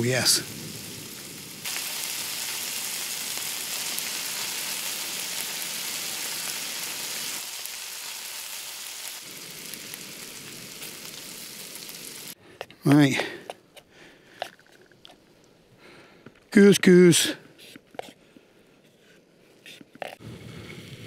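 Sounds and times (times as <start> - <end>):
steak sizzling in a frying pan: 0.0 - 12.4.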